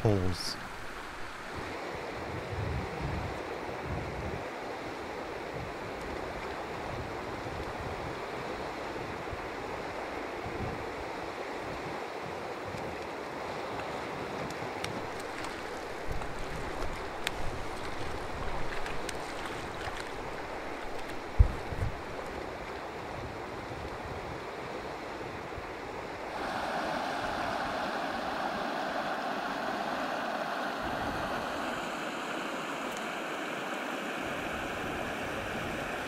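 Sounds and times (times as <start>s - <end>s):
river flowing: 0.0s - 2.5s, 3.4s - 36.0s
wind rumble on microphone: 1.4s - 26.6s.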